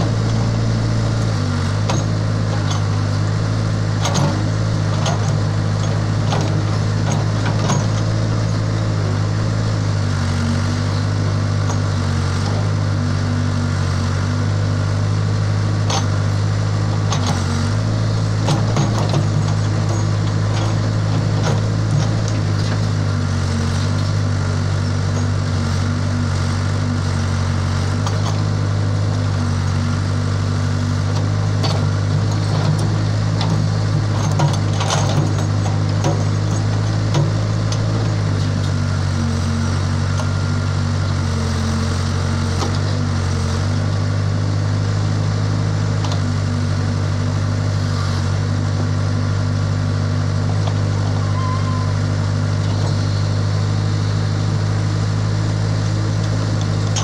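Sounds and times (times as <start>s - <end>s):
bucket and arm clunks: 0.0s - 3.2s, 3.9s - 8.6s, 18.3s - 23.0s, 31.1s - 38.8s
diesel engine running under load: 0.0s - 57.0s.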